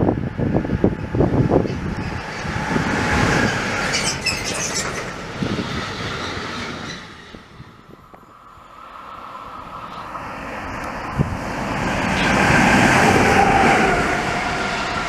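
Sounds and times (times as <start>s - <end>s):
wheel squeals: 3.4s - 7.4s.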